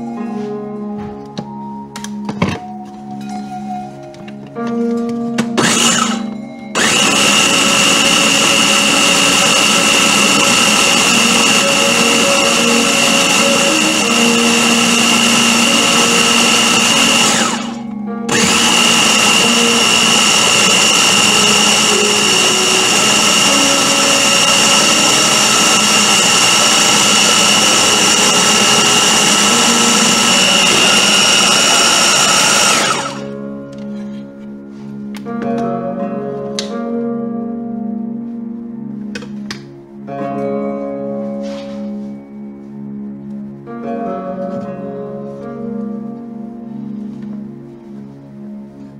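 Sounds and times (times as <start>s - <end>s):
blender motor whining: 5.6s - 33.3s.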